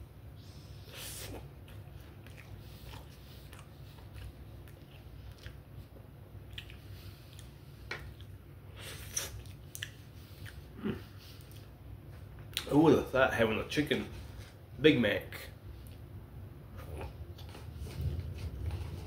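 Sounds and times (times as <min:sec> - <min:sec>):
steady low hum: 0:00.0 - 0:19.0
person chewing food: 0:00.9 - 0:11.8, 0:16.7 - 0:19.0.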